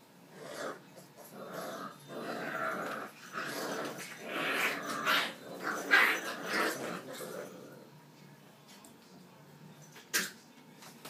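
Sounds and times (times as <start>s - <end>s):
puppies growling: 0.3s - 8.0s.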